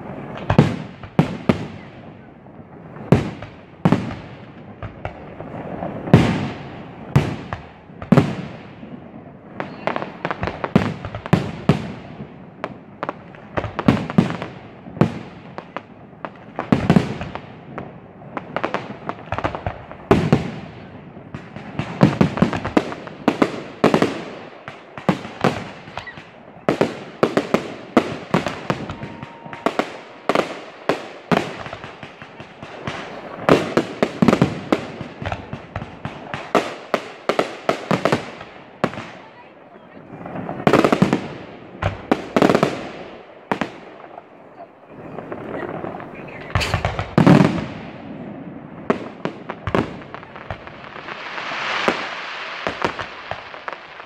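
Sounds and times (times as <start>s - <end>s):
firework shells bursting: 45.1s - 48.0s.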